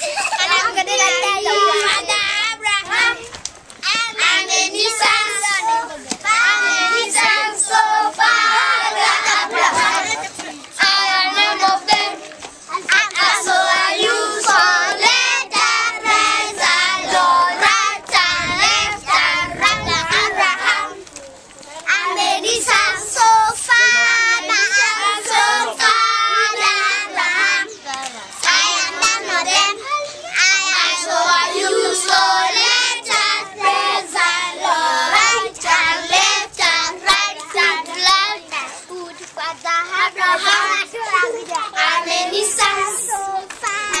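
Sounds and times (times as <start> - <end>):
children singing: 3.9 - 21.0, 21.9 - 39.1, 39.7 - 44.0
hand claps: 11.8 - 13.3, 43.5 - 44.0.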